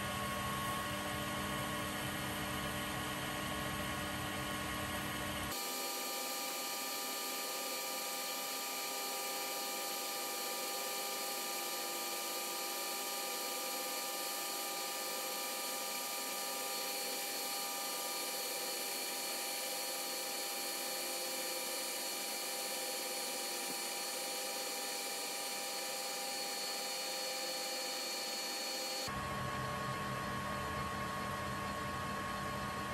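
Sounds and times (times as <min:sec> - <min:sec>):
metal lathe whining: 0:05.6 - 0:29.1.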